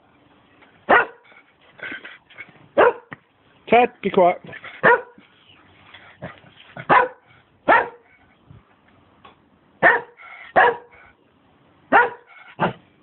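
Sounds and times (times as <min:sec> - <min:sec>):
dog barking: 0:00.9 - 0:01.3, 0:02.8 - 0:03.1, 0:04.8 - 0:05.2, 0:06.2 - 0:08.1, 0:09.8 - 0:11.0, 0:11.9 - 0:12.8.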